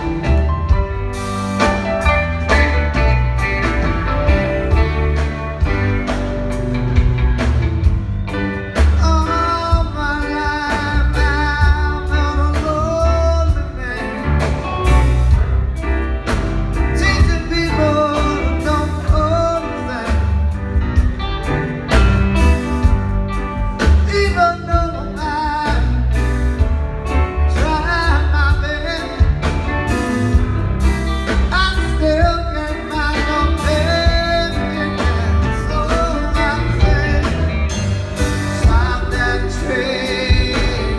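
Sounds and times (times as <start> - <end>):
live rock band playing: 0.0 - 40.9
man singing: 8.8 - 14.8, 16.9 - 20.7, 23.8 - 26.2, 27.5 - 29.7, 31.3 - 40.9.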